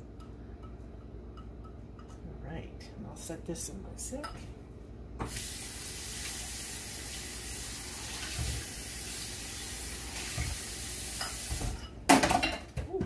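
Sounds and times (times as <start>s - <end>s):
faucet water running into sink: 5.2s - 11.8s.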